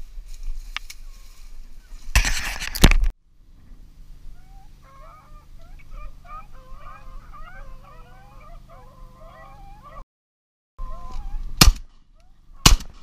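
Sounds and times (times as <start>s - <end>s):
birds honking: 4.3s - 10.0s
shotgun shot: 11.6s - 12.0s, 12.6s - 13.0s.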